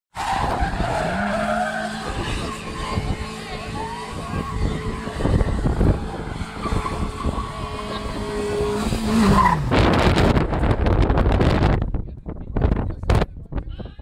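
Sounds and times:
tyres squealing: 0.2s - 9.7s
car engine running hard: 0.3s - 11.9s.

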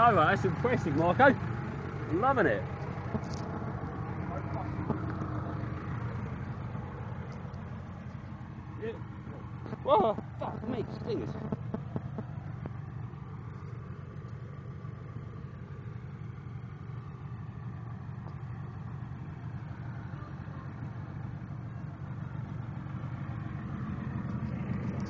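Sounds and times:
diesel engine running: 0.0s - 25.0s.

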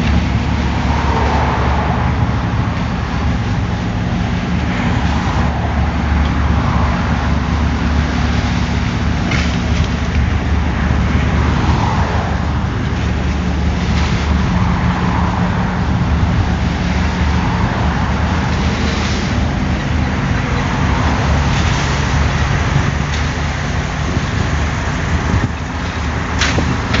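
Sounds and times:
diesel engine running: 0.0s - 27.0s
metal clank: 26.4s - 27.0s.

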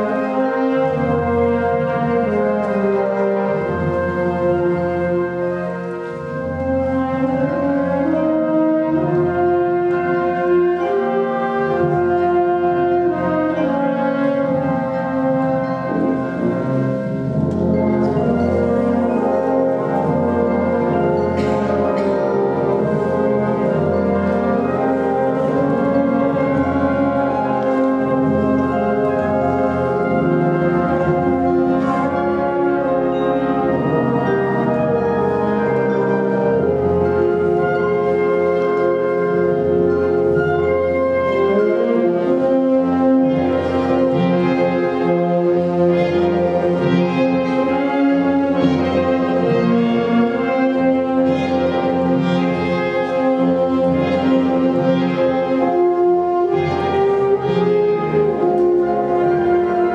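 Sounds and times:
concert band playing chords: 14.2s - 40.8s.

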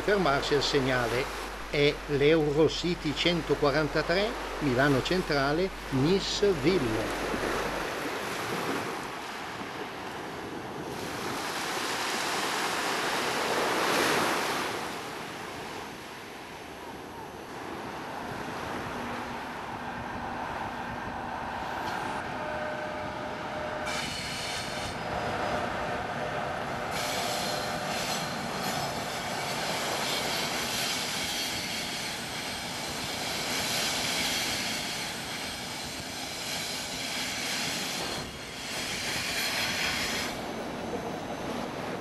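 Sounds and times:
train running noise: 0.0s - 15.9s, 16.8s - 42.0s
surf on a shingle beach: 0.0s - 42.0s
wind on microphone: 16.9s - 42.0s
metallic wheel squeal: 22.1s - 25.6s.

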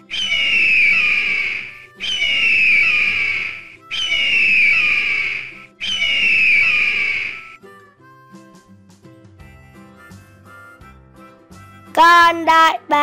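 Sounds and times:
eagle screeching: 0.0s - 7.6s
soft background music: 0.3s - 13.0s.

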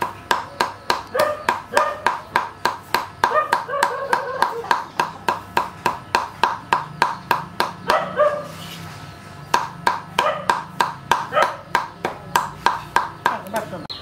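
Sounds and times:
cleaver chopping on board: 0.0s - 8.0s, 9.5s - 13.7s
dog barking: 1.1s - 2.1s, 3.2s - 4.6s, 7.8s - 8.6s, 10.2s - 10.6s, 11.3s - 11.7s.

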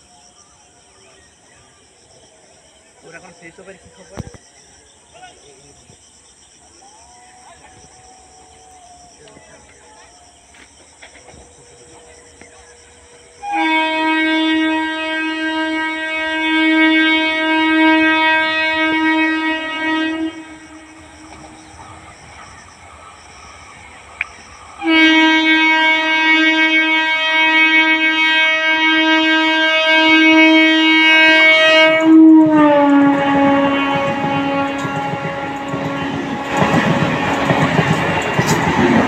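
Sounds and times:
train running noise: 6.6s - 39.0s
train horn blasts: 13.1s - 21.9s, 24.8s - 39.0s.

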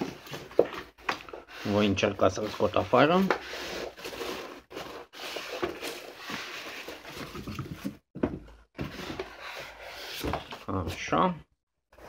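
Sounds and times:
cardboard scraping: 0.0s - 8.0s, 8.8s - 11.1s.

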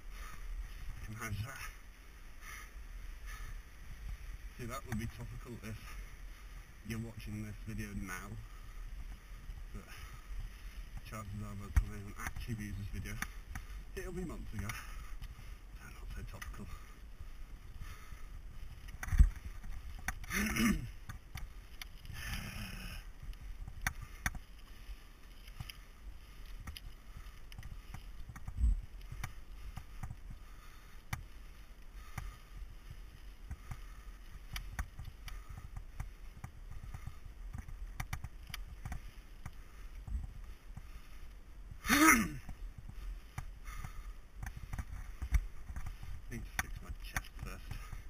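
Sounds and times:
bike rattles and clicks: 0.0s - 48.0s
bike tyres rumbling on gravel: 0.0s - 48.0s
rider vocal sounds: 41.8s - 42.6s.

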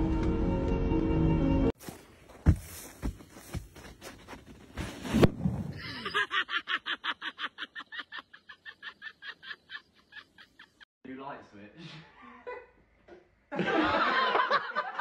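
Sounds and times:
body crashing onto plastic sled: 4.3s - 6.0s
person cackling laughter: 5.8s - 10.8s.

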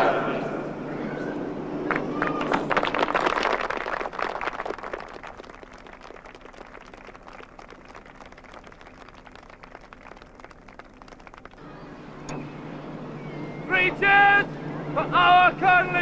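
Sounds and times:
crowd applause: 1.8s - 11.8s.

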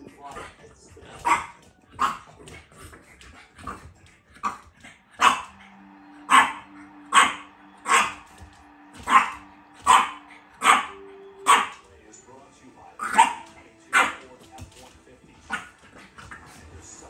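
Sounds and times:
puppy barking: 0.3s - 2.6s, 3.5s - 5.6s, 6.2s - 8.3s, 8.9s - 11.8s, 13.0s - 14.2s, 15.5s - 16.5s.

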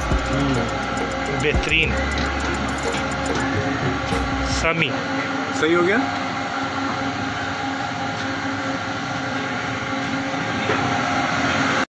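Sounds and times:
machinery motor hum: 0.0s - 11.8s.

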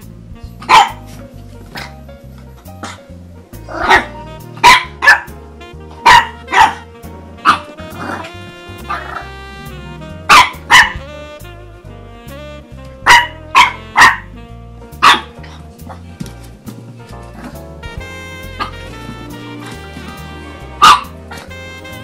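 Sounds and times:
music with bass line: 0.0s - 22.0s
puppy barking: 0.6s - 1.2s, 3.7s - 9.3s, 10.2s - 11.1s, 13.0s - 14.4s, 15.0s - 16.0s, 20.8s - 22.0s.

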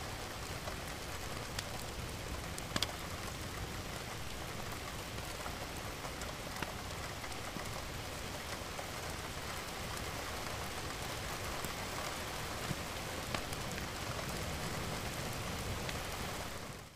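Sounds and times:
steady rainfall: 0.0s - 16.9s
rain drop ticks: 0.4s - 3.4s, 11.6s - 14.4s.

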